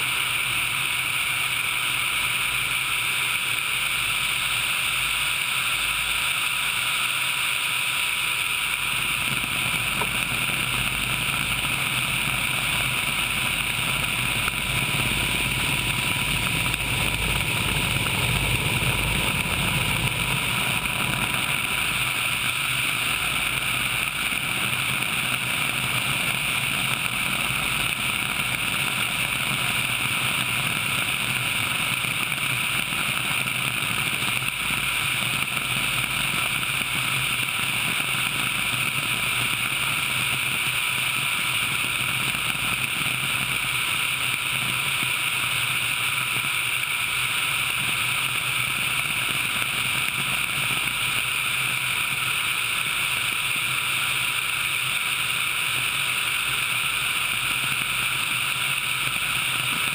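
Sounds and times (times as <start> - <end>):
helicopter engines and rotor: 0.0 - 59.9
rushing air: 2.0 - 30.2.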